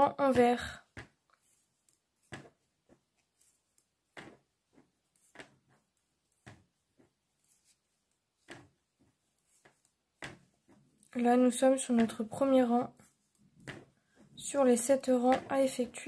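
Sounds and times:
knitting needles clicking: 3.2 - 3.9.

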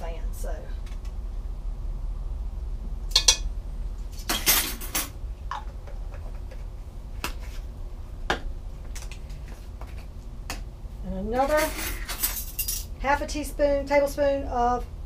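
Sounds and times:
utensils and pot clattering: 3.1 - 3.5, 4.2 - 5.2, 11.4 - 12.9.

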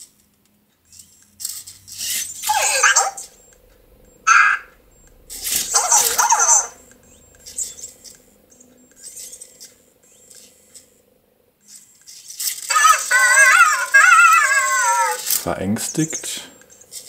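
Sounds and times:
warbling electronic robot voice: 1.9 - 9.2, 12.6 - 16.2.

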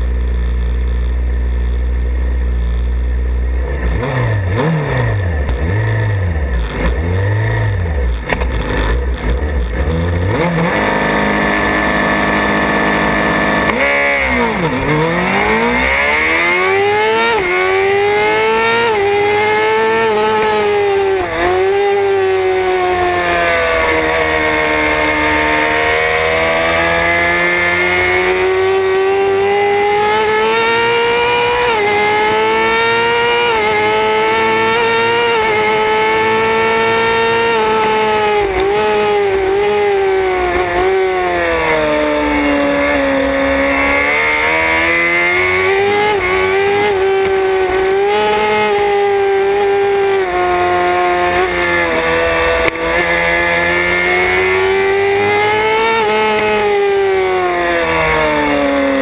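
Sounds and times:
motorcycle engine revving through gears: 0.0 - 59.0.

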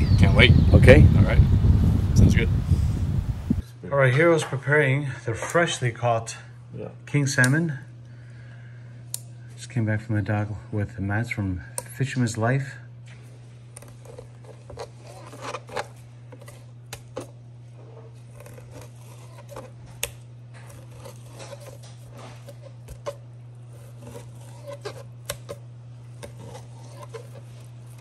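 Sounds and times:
steady low hum: 0.0 - 28.0
kitchen tools clicking and scraping: 20.6 - 25.6.

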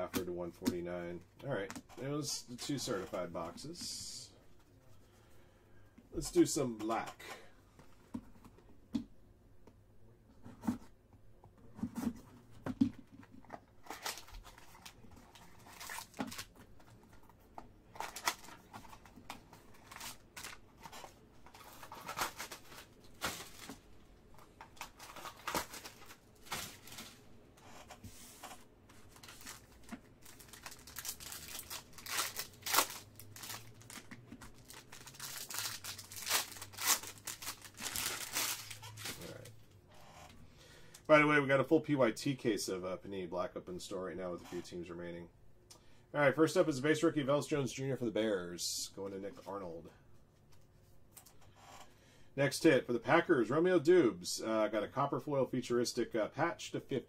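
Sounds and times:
plastic and foil wrapping rustling: 18.0 - 23.8, 24.4 - 27.2, 29.0 - 39.5.

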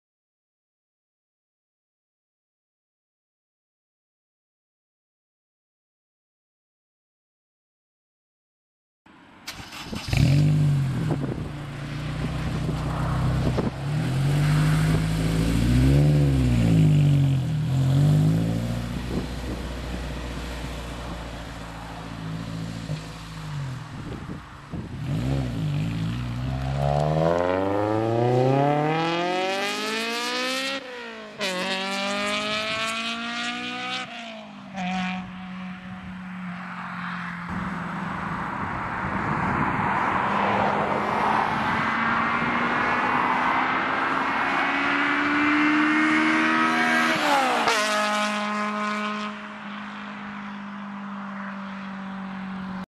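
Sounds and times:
car engine starting: 9.4 - 24.0
car engine revving: 9.5 - 24.1, 24.9 - 35.9
car accelerating and passing: 9.5 - 52.9.

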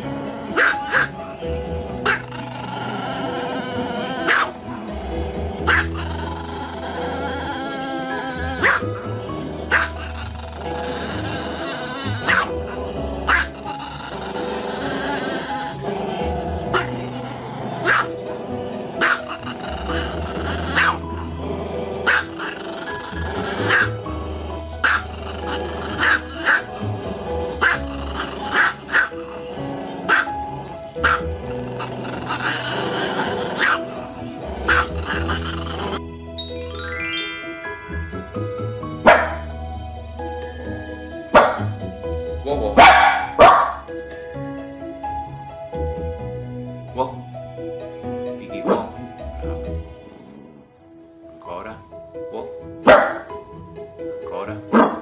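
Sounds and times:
background music: 0.0 - 55.0
small dog barking: 0.5 - 1.2, 4.2 - 4.6, 5.7 - 6.0, 8.6 - 8.8, 9.7 - 10.0, 12.2 - 12.5, 13.3 - 13.5, 17.8 - 18.2, 19.0 - 19.2, 20.7 - 21.0, 22.0 - 22.3, 23.6 - 23.9, 24.8 - 25.0, 26.0 - 26.6, 28.5 - 29.1, 30.1 - 30.3, 31.0 - 31.3, 33.6 - 33.8, 39.0 - 39.4, 41.3 - 41.7, 42.8 - 43.8, 48.7 - 48.9, 52.8 - 53.3, 54.7 - 55.0.

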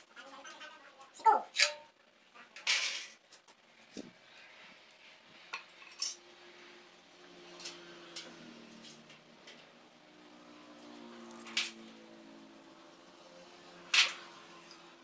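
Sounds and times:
metal tools clinking and scraping: 5.6 - 6.2.

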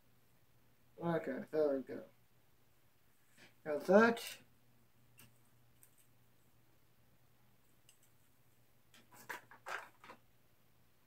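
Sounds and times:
plastic parts rustling and clicking: 8.9 - 10.2.

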